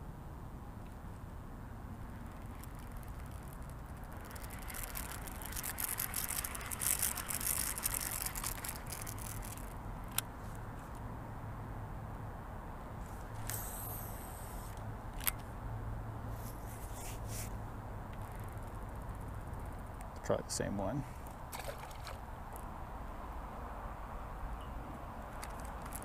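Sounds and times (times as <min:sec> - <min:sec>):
fishing gear rustling and clicking: 0:02.1 - 0:11.0, 0:25.3 - 0:26.0.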